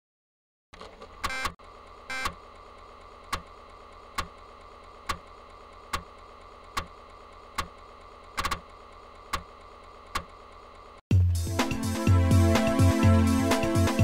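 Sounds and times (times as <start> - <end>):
floppy disk drive clicking: 0.8 - 10.6
disk drive hiss: 1.2 - 11.0.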